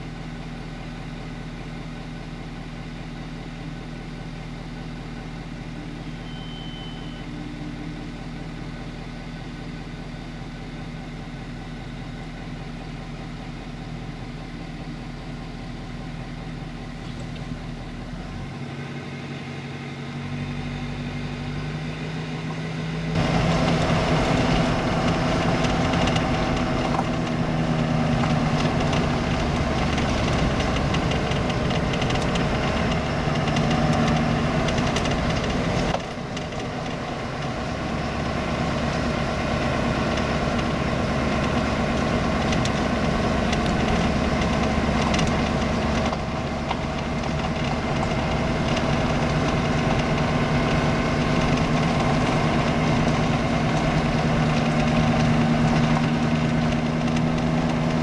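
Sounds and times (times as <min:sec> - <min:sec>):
vehicle engine: 0:00.0 - 0:58.0
tyres running over gravel: 0:23.2 - 0:58.0.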